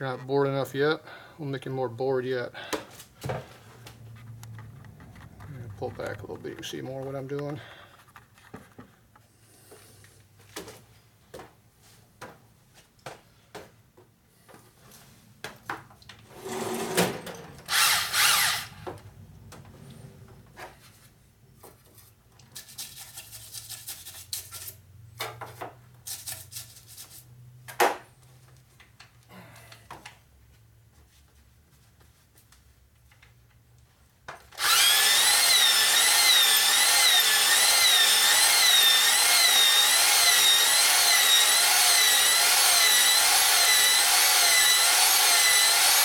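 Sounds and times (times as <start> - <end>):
power drill spinning: 16.3 - 19.0, 34.5 - 46.0.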